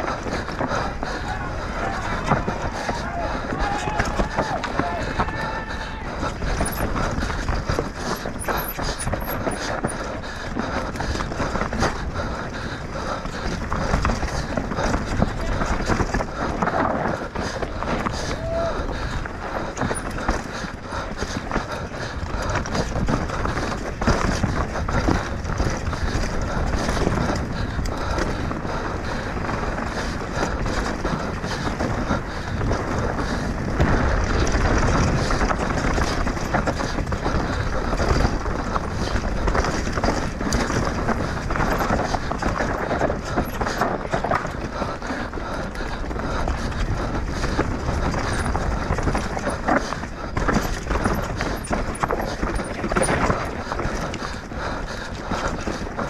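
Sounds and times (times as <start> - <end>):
bike rattling and clattering: 0.0 - 56.0
bike tyres rolling over gravel: 0.0 - 56.0.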